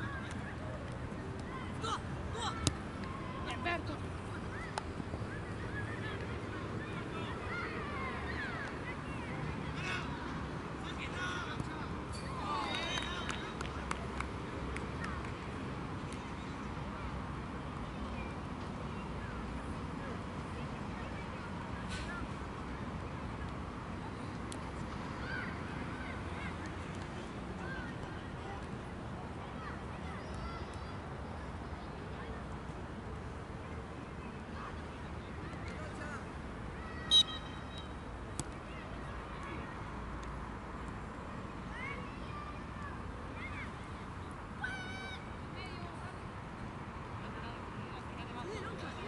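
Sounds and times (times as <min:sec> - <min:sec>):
low background noise: 0:00.0 - 0:49.0
distant players shouting: 0:01.4 - 0:03.9, 0:44.6 - 0:45.4.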